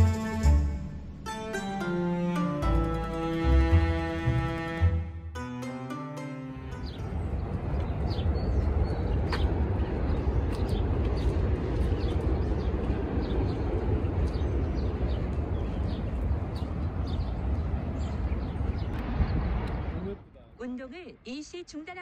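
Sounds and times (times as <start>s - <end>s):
low rumble of road traffic: 6.2s - 22.0s
birds chirping: 6.7s - 19.9s.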